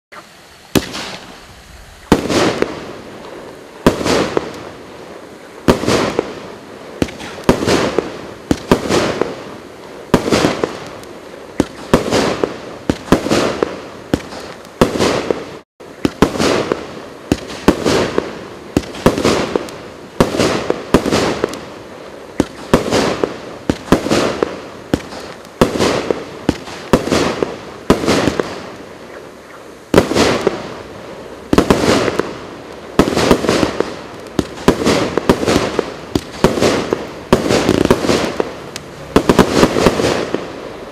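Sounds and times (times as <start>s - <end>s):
fireworks bangs: 0.1s - 40.9s.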